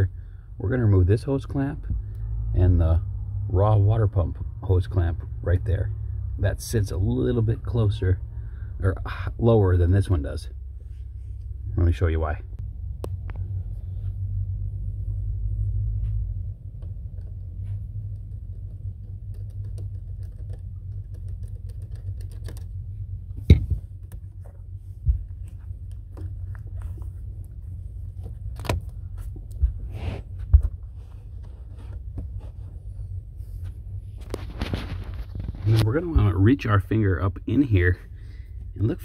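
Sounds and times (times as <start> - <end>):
steady low rumble: 0.0 - 39.0
hands handling hose and clamp: 16.7 - 29.8.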